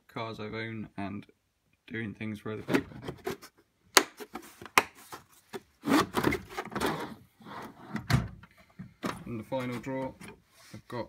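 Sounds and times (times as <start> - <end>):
plastic case scraping in drawer: 5.8 - 8.1.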